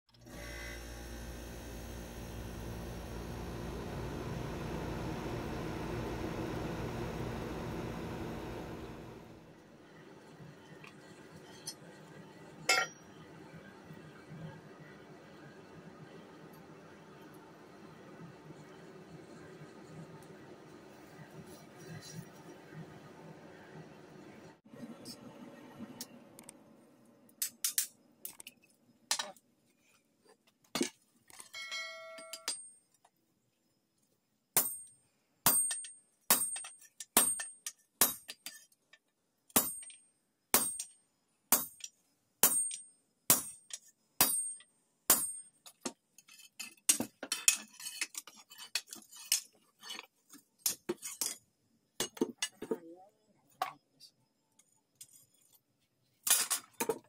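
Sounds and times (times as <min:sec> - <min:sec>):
hammer striking steel on anvil: 0:12.7 - 0:13.0, 0:35.5 - 0:38.4, 0:40.6 - 0:41.8, 0:42.4 - 0:43.6, 0:44.2 - 0:45.5.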